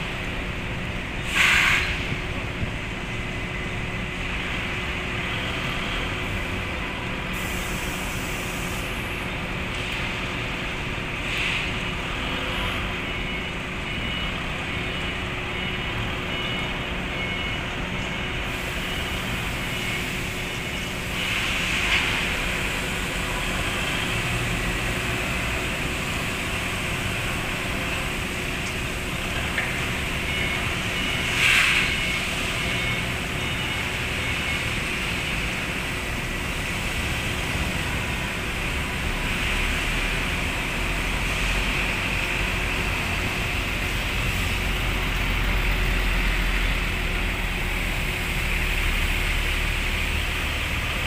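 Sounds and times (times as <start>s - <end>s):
faint high beeps: 12.5s - 20.0s, 29.9s - 34.7s
forklift engine running: 32.0s - 51.0s.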